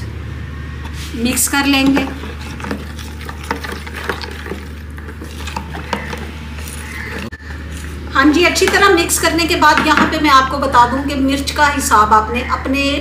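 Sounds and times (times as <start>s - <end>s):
utensil scraping a bowl: 0.9s - 8.0s.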